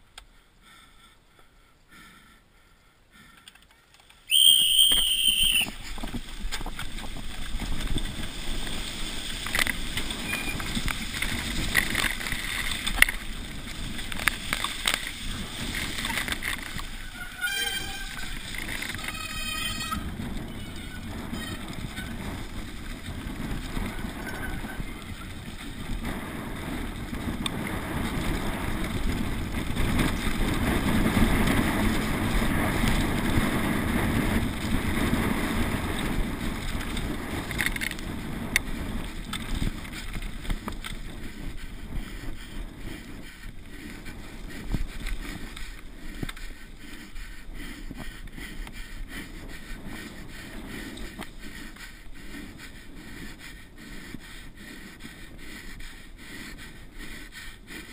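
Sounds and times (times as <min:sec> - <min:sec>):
bike tyre noise on ground: 0:00.0 - 0:57.9
bike rattling: 0:03.1 - 0:57.9
wind on microphone: 0:04.3 - 0:57.9
rider breathing hard: 0:38.1 - 0:57.9.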